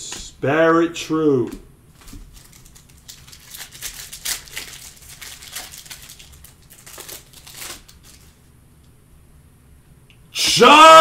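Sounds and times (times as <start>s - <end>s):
foil tearing crackles: 2.0s - 8.4s
foil wrapper crinkling: 2.0s - 8.4s.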